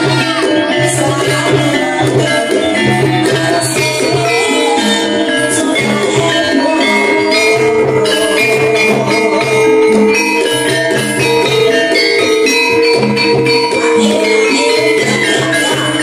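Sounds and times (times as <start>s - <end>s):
gamelan music: 0.0s - 16.0s.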